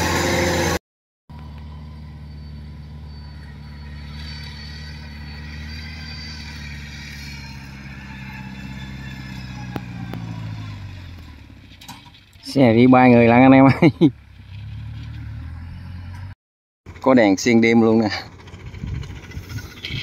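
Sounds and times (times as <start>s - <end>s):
tracked carrier engine running: 16.9s - 20.0s.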